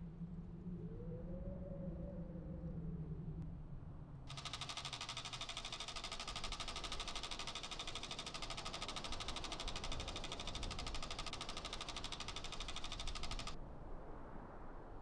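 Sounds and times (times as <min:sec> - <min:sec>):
rapid mechanical clatter: 0:04.3 - 0:13.6.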